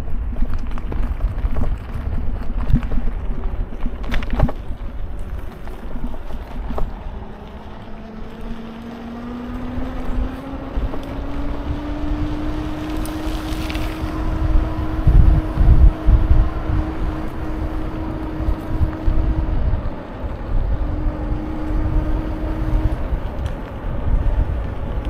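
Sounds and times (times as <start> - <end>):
wind rumbling on microphone: 0.0 - 25.0.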